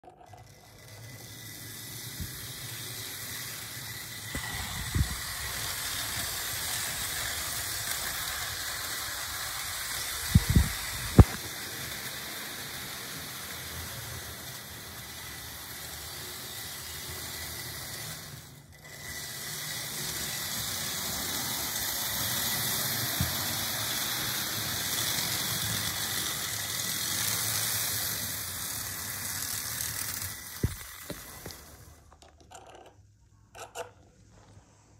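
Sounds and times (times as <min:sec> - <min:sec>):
model train whirring on track: 0:00.0 - 0:32.1.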